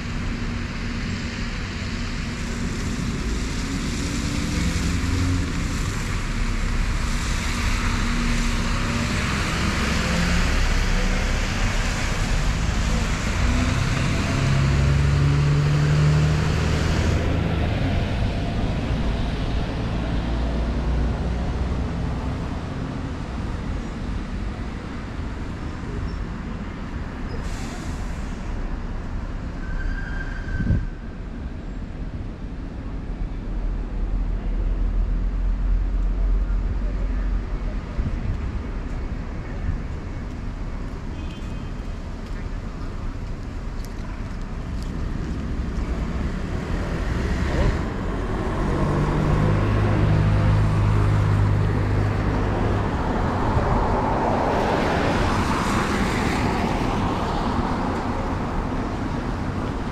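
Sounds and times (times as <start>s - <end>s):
tyres hissing on wet road: 0.0s - 31.5s, 32.1s - 59.9s
low engine hum: 31.4s - 59.9s.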